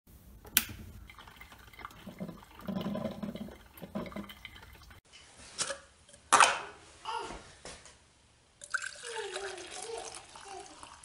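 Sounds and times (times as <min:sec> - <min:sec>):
coffee maker gurgling: 0:00.8 - 0:05.0, 0:08.6 - 0:11.0.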